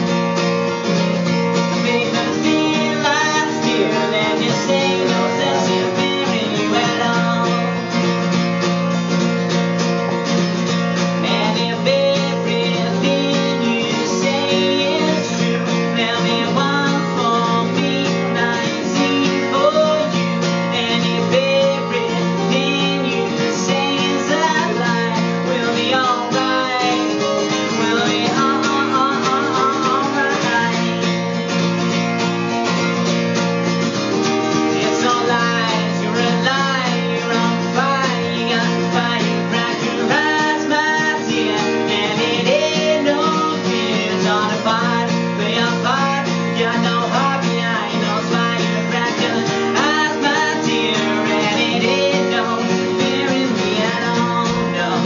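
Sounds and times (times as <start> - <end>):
solo acoustic guitar: 0.0 - 55.0.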